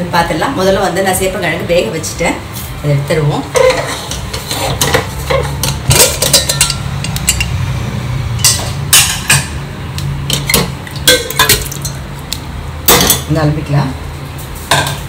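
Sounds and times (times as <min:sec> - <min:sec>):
metal pot and lid clanking: 0:03.5 - 0:07.6, 0:08.4 - 0:09.6, 0:10.2 - 0:12.0, 0:12.8 - 0:13.3, 0:14.6 - 0:15.0.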